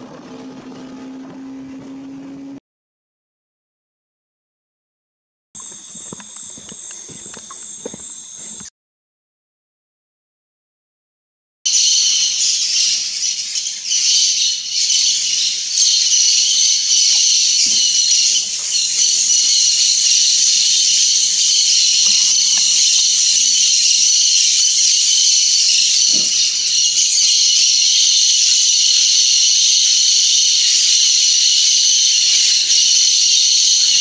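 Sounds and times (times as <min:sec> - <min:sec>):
insects buzzing: 0:05.6 - 0:08.7, 0:11.7 - 0:34.0.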